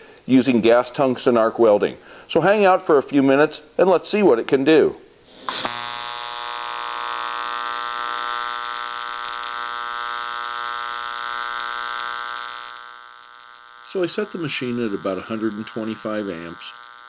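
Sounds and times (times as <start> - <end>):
welding arc buzzing: 5.2 - 17.0.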